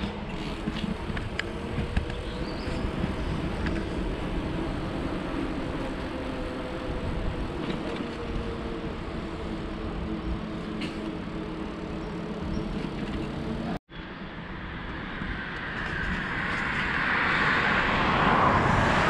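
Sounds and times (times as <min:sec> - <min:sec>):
wind on the microphone: 0:00.0 - 0:09.1
faint engine hum: 0:00.0 - 0:13.8
tyres on the path: 0:00.0 - 0:19.0.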